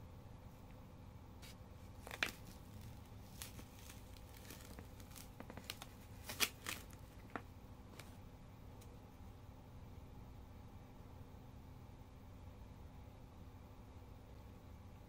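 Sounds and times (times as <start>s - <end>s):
crinkly plastic ticks: 2.0s - 8.1s.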